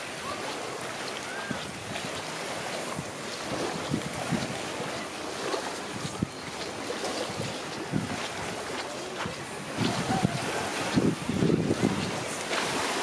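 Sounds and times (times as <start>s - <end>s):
small waves lapping at shore: 0.0s - 13.0s
wind on microphone: 0.9s - 13.0s.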